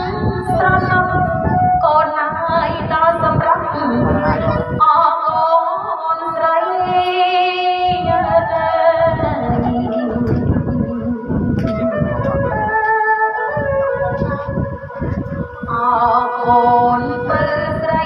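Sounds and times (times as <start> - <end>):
woman singing into a microphone: 0.0 - 11.6, 15.4 - 18.0
drumbeats: 9.4 - 16.8
bowed two-string fiddle: 9.6 - 18.0.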